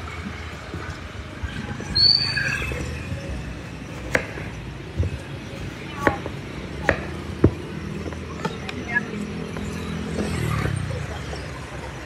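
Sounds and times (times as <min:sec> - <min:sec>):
busy street noise: 0:00.0 - 0:12.0
short high-pitched squeal: 0:01.9 - 0:02.9.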